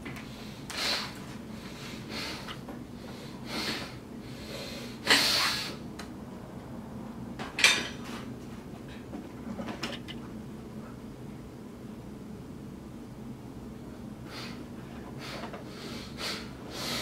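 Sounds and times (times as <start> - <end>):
person breathing hard: 0.2 - 5.8, 14.2 - 17.0
sharp exhales: 0.3 - 5.8.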